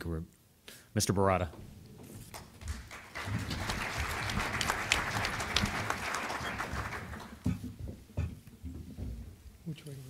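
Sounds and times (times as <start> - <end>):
audience applauding: 2.3 - 7.5.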